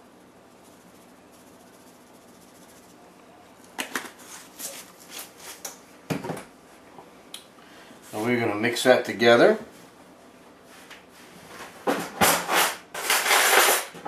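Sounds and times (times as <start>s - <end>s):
shaker can clicks and knocks: 3.7s - 5.8s.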